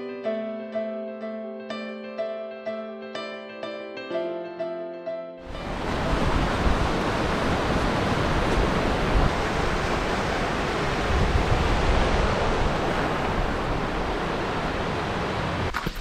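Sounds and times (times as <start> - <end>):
wind buffeting the microphone: 5.5 - 15.7
creek rushing over boulders: 5.6 - 15.7.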